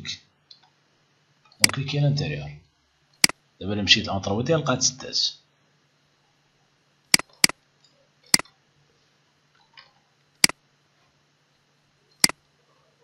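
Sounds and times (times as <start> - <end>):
computer mouse clicking: 7.2 - 7.6.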